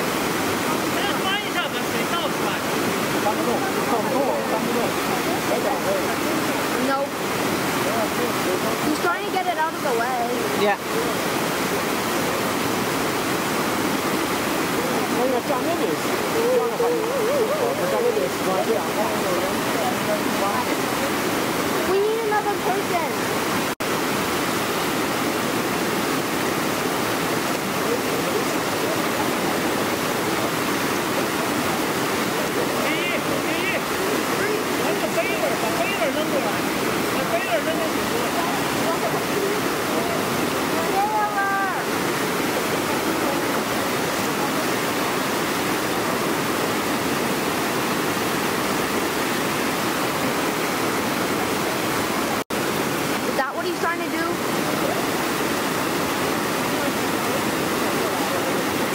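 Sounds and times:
whitewater rapids rushing: 0:00.0 - 0:58.9.

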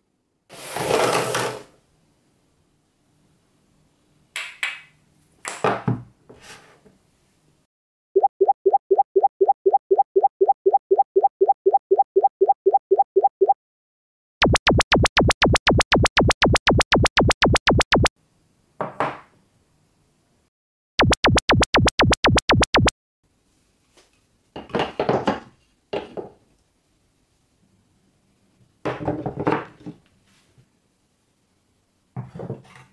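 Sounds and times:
fast sharp electronic clicks: 0:14.4 - 0:18.1, 0:21.0 - 0:22.9
short pitched electronic beeps: 0:14.4 - 0:18.1, 0:21.0 - 0:22.9.

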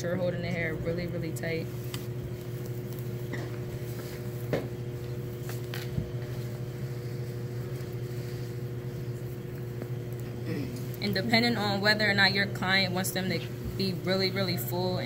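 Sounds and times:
low mechanical hum with tones: 0:00.0 - 0:15.0.

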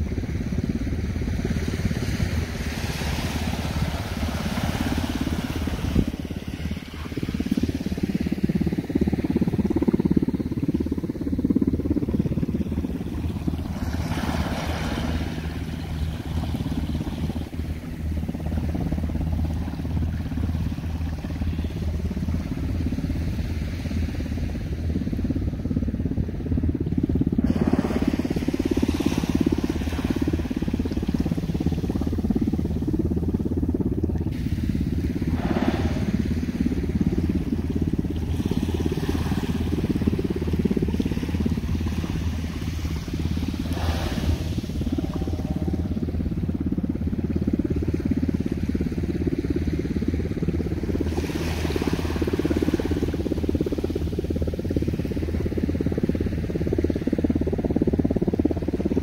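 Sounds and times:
wind buffeting microphone: 0:00.0 - 0:59.0.

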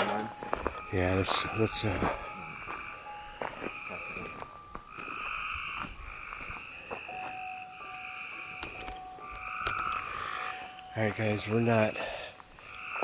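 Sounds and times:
footsteps on gravel: 0:00.0 - 0:07.5
insects trilling: 0:00.0 - 0:13.0.

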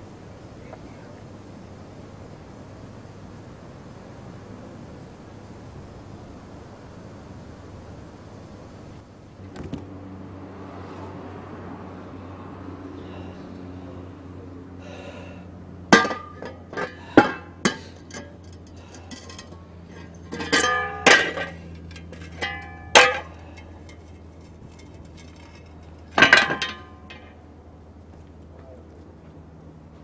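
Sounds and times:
low steady hum: 0:00.0 - 0:30.0
metal shovels clanking on asphalt: 0:14.8 - 0:27.6.

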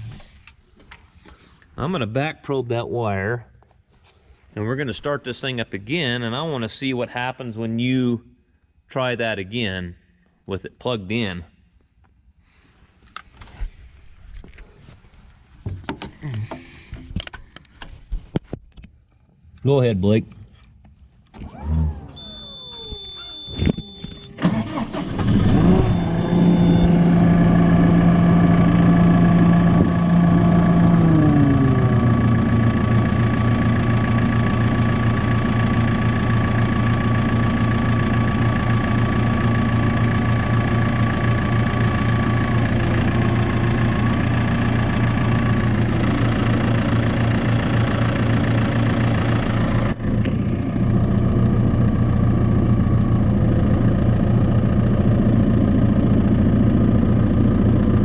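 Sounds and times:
diesel engine idling: 0:24.4 - 0:58.0.

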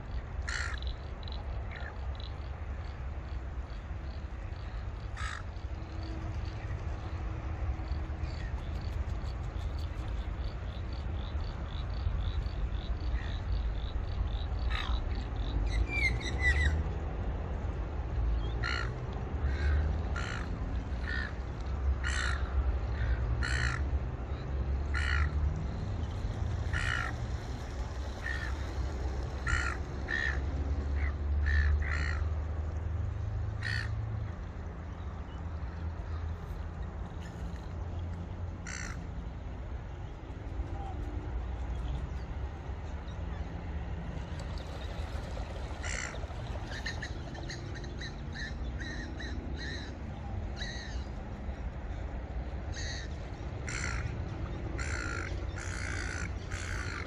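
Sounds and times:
crow cawing: 0:00.5 - 0:00.9, 0:05.2 - 0:05.4, 0:18.6 - 0:18.9, 0:19.5 - 0:21.4, 0:22.0 - 0:23.9, 0:24.9 - 0:25.4, 0:26.7 - 0:27.2, 0:28.2 - 0:28.7, 0:29.4 - 0:30.4, 0:31.0 - 0:32.3, 0:33.6 - 0:34.0, 0:38.6 - 0:39.0, 0:45.8 - 0:46.1, 0:53.7 - 0:54.1, 0:54.8 - 0:57.0.

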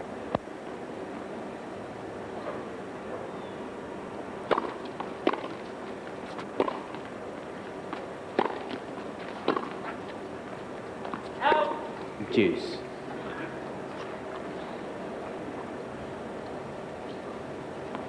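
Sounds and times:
background hiss: 0:00.0 - 0:18.0
tennis ball struck by rackets: 0:04.4 - 0:05.7, 0:06.5 - 0:07.0, 0:07.9 - 0:10.0
tennis ball bouncing on hard court: 0:04.5 - 0:05.6, 0:06.6 - 0:07.0, 0:07.9 - 0:10.0.

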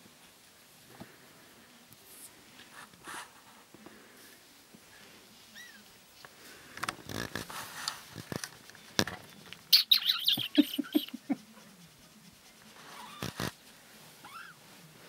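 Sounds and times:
rustling: 0:00.0 - 0:15.0
kittens mewing: 0:09.7 - 0:11.4.

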